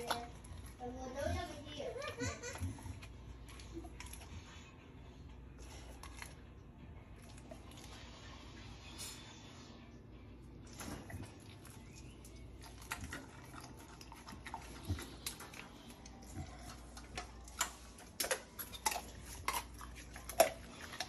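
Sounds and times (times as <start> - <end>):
dog chewing food from metal bowl: 0.0 - 4.6, 10.9 - 21.0.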